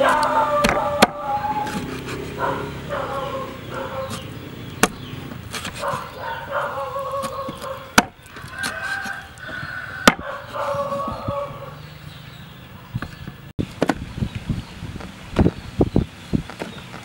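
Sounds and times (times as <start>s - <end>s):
meat cleaver chopping on wooden board: 10.0s - 10.3s.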